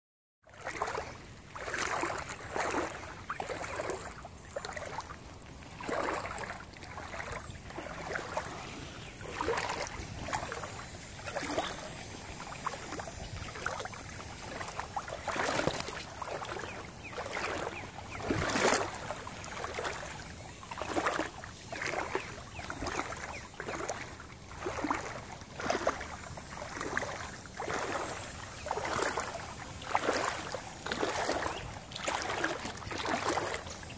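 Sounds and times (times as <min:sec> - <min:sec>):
water sloshing and splashing: 0:00.5 - 0:33.9.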